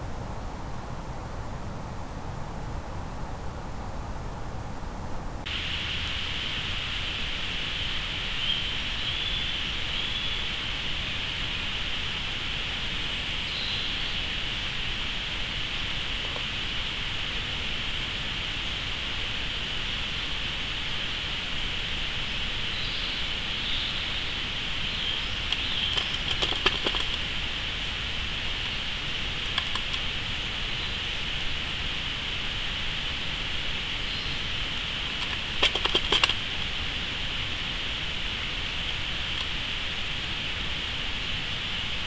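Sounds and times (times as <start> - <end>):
steady hiss: 0.0 - 42.0
metal traps clicking and rattling: 25.5 - 27.2, 35.2 - 36.4.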